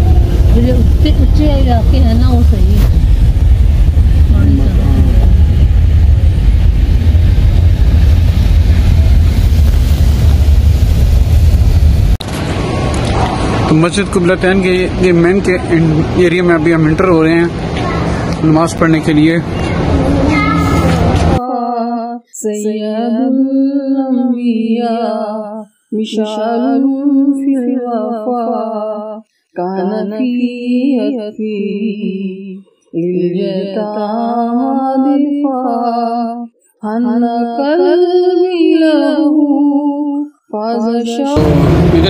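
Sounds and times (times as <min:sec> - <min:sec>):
person singing unaccompanied: 0:20.0 - 0:41.4.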